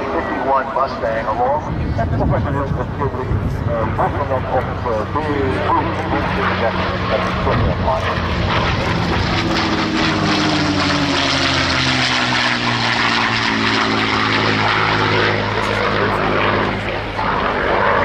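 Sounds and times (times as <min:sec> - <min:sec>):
propeller plane flying past: 0:00.0 - 0:18.0.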